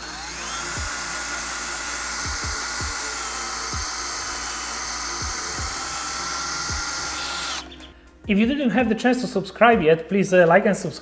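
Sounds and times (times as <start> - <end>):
power drill whining: 0.0 - 7.9
background music with beat: 2.2 - 11.0.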